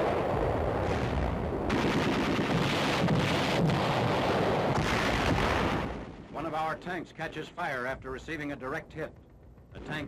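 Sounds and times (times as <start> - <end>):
shell explosions: 0.0 - 10.0
rapid gunfire: 1.7 - 6.1.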